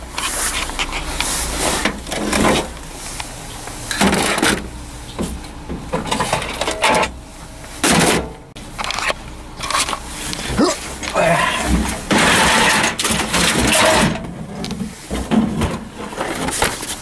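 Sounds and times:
electronics clattering in steel dumpster: 3.9 - 7.2, 7.8 - 9.9, 11.7 - 17.0.

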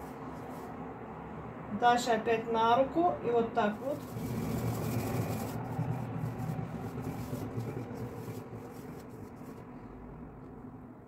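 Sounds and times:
hand rubbing flour in bowl: 0.0 - 0.8, 3.6 - 9.7.

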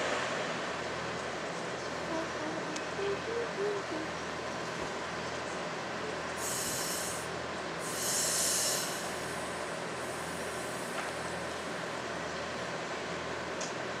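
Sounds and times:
electric locomotive hum: 0.0 - 14.0
brake air hissing: 6.4 - 11.2.

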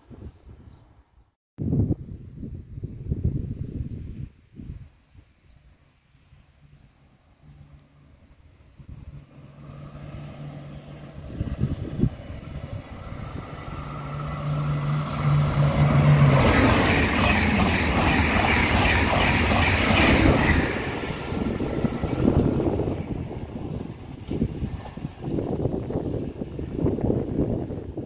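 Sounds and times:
high-speed train passing: 6.4 - 28.0.

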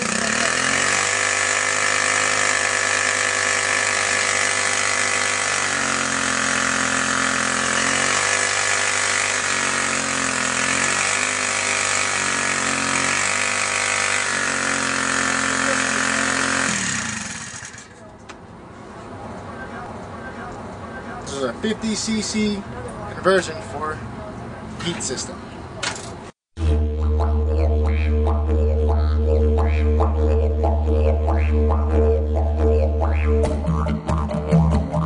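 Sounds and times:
bicycle engine revving: 0.0 - 18.0, 26.6 - 33.8.

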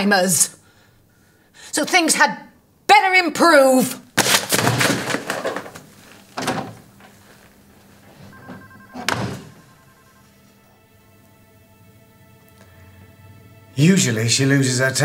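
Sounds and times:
clattering rustling movement: 4.2 - 9.9
door shutting hard: 4.5 - 7.2, 8.3 - 9.7.

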